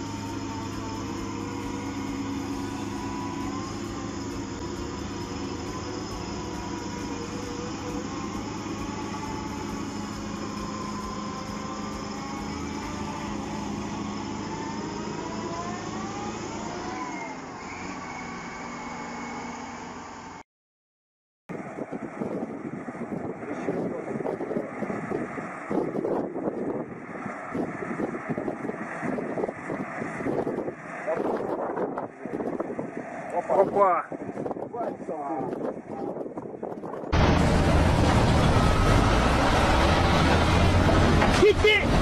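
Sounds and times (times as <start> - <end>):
dozer pushing sand: 0.0 - 20.3, 37.1 - 42.0
heavy diesel engine under load: 0.0 - 20.4, 21.5 - 42.0.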